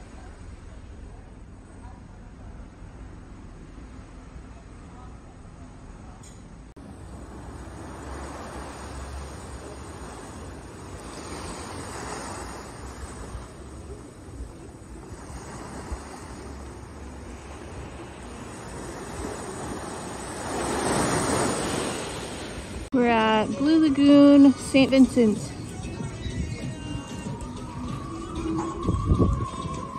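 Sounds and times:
small waves washing onto sand: 0:06.8 - 0:22.9
wind rumble on microphone: 0:26.0 - 0:29.9.

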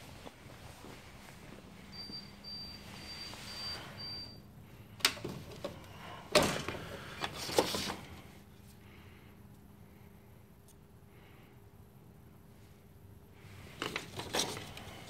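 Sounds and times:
short high beeps: 0:02.0 - 0:04.4.

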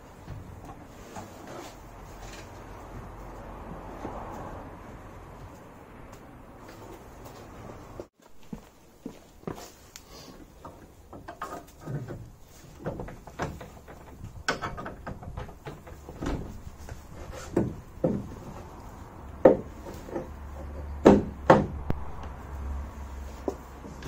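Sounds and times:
metal clunks and knocks: 0:10.6 - 0:18.7, 0:19.4 - 0:22.0.

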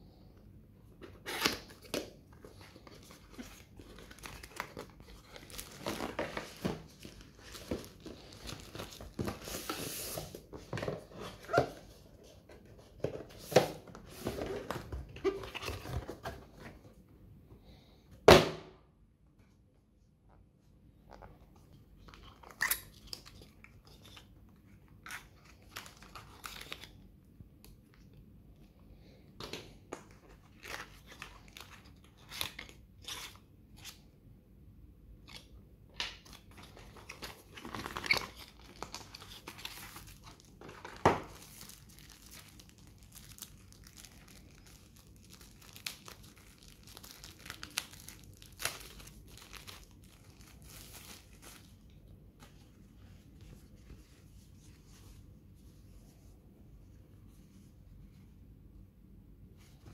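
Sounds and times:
plastic crinkling: 0:36.3 - 0:51.9.

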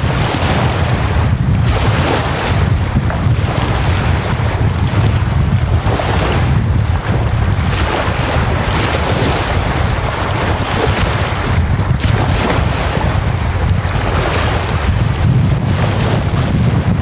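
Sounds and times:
lake waves washing on shore: 0:00.0 - 0:17.0
low wind rumble on microphone: 0:00.0 - 0:17.0.

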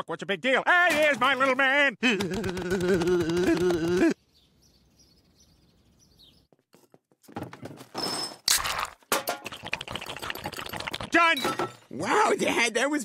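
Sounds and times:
faint bird chirps: 0:04.2 - 0:06.5.

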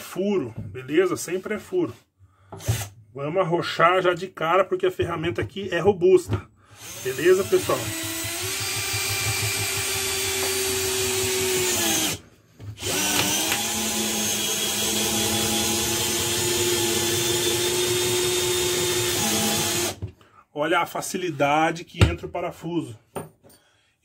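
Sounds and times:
cordless drill driving a screw: 0:06.8 - 0:12.2, 0:12.8 - 0:20.0.

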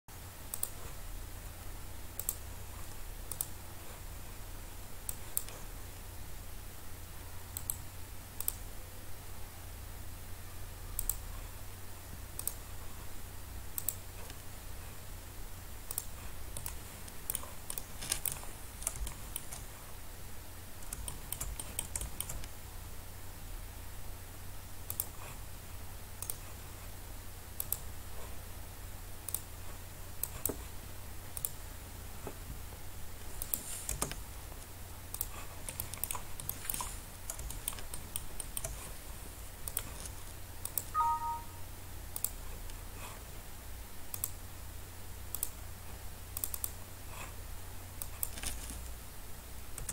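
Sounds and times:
steady low hum: 0:00.1 - 0:49.9
mouse and keyboard clicks: 0:00.5 - 0:00.8, 0:02.2 - 0:02.4, 0:03.3 - 0:03.6, 0:12.4 - 0:12.6, 0:13.8 - 0:14.5, 0:15.9 - 0:19.7, 0:20.8 - 0:22.5, 0:24.9 - 0:25.2, 0:33.4 - 0:34.2, 0:35.1 - 0:39.0, 0:39.6 - 0:41.4, 0:45.3 - 0:45.6, 0:46.4 - 0:46.8, 0:48.0 - 0:48.9
short beep: 0:40.9 - 0:41.6.

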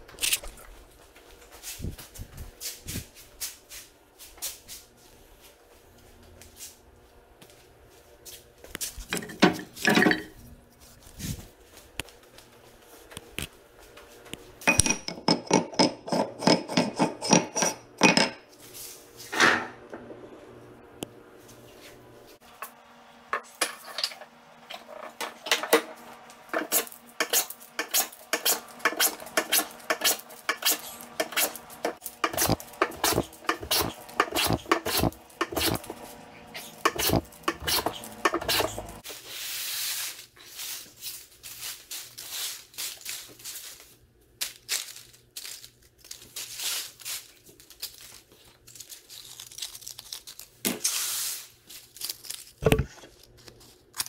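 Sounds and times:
hand plane shearing wood: 0:32.3 - 0:39.0
wood shavings clicking and rustling: 0:41.5 - 0:50.6.

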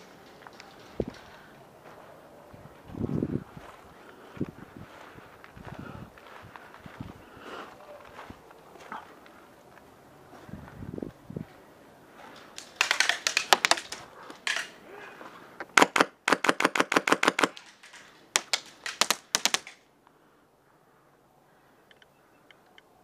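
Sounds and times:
airsoft gun full-auto bursts: 0:15.8 - 0:19.8.

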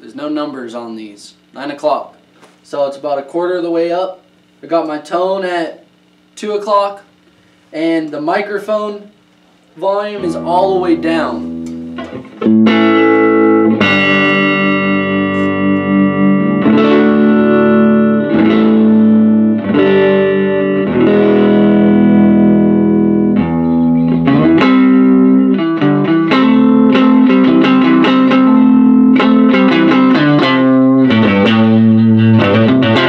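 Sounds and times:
electric guitar chords and notes: 0:10.0 - 0:33.0.

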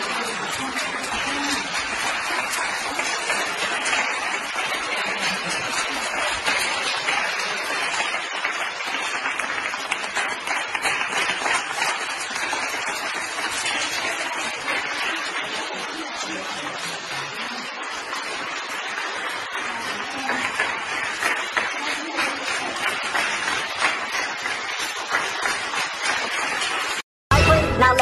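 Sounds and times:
crowd applauding: 0:00.0 - 0:28.0.

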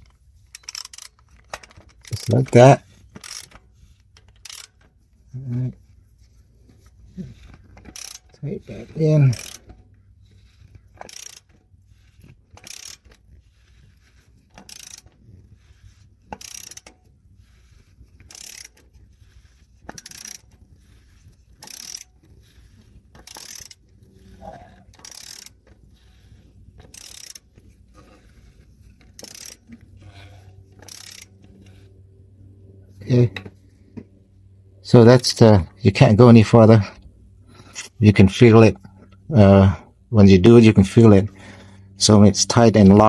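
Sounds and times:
ratchet wrench clicking: 0:00.0 - 0:04.9, 0:07.4 - 0:13.8, 0:14.4 - 0:28.4, 0:29.0 - 0:31.8.

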